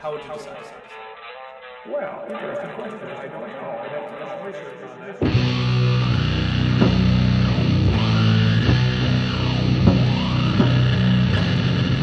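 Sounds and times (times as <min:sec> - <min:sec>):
electric guitar chords: 0:00.0 - 0:12.0
drum hits: 0:05.2 - 0:12.0.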